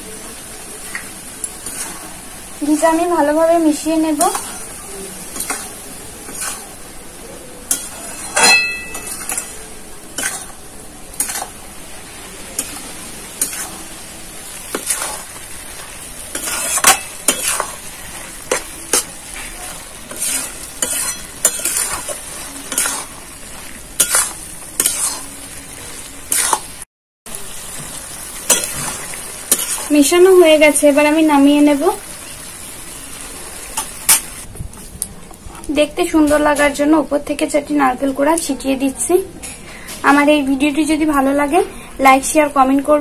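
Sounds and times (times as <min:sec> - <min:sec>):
frying sizzle: 0:00.0 - 0:43.0
metal spatula scraping a wok: 0:01.6 - 0:02.2, 0:03.9 - 0:06.8, 0:07.7 - 0:11.6, 0:12.6 - 0:25.4, 0:26.2 - 0:26.8, 0:28.5 - 0:30.1
pan ringing clink: 0:07.8 - 0:09.5.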